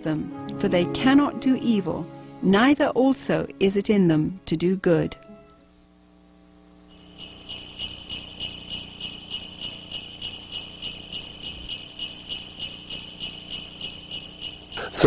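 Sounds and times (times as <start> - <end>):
sleigh bells jingling: 6.9 - 15.0.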